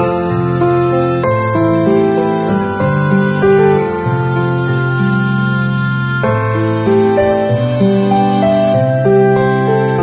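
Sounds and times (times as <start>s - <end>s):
soft slow background music: 0.0s - 10.0s.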